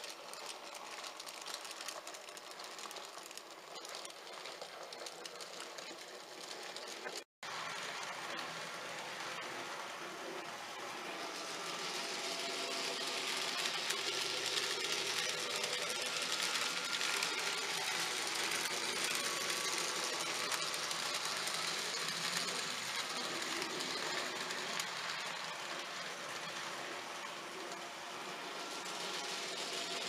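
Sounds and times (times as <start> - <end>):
model trains running on track: 0.0 - 30.0.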